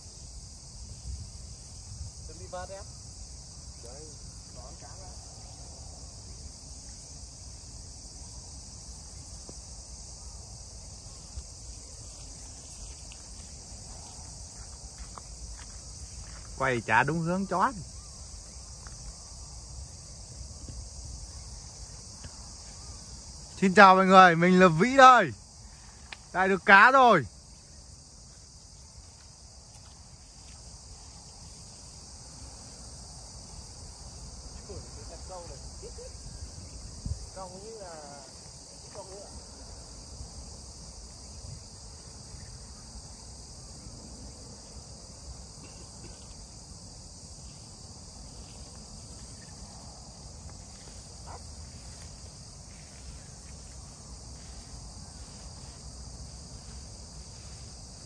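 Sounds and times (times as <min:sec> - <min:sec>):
insects chirping in grass: 0:00.0 - 0:58.0
wind rumble on microphone: 0:00.4 - 0:06.0, 0:35.8 - 0:37.6, 0:41.2 - 0:41.8.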